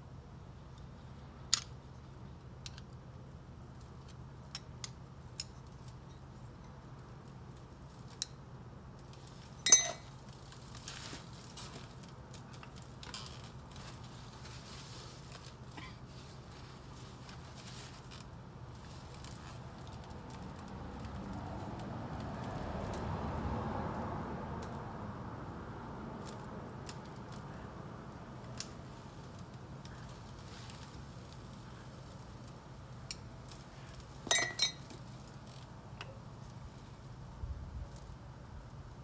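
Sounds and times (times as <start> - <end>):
metal car parts clinking: 9.6 - 10.2, 34.2 - 34.9.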